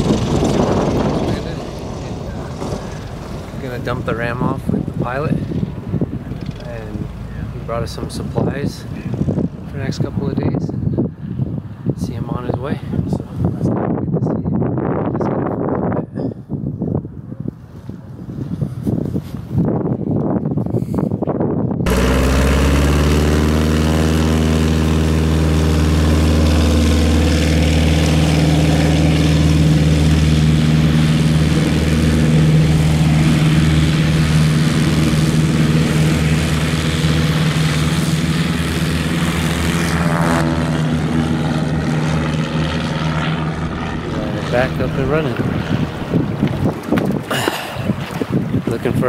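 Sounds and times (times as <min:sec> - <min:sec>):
propeller plane engine: 0:00.0 - 0:12.0, 0:21.8 - 0:49.0.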